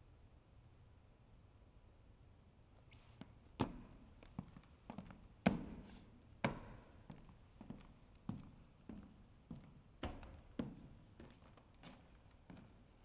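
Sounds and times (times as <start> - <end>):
hard-soled footsteps on stage floor: 3.2 - 12.9.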